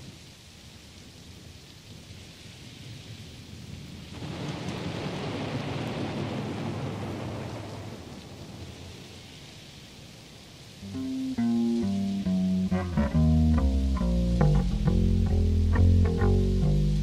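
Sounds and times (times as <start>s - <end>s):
steady rain: 0.0s - 17.0s
thunder rolling: 4.0s - 9.0s.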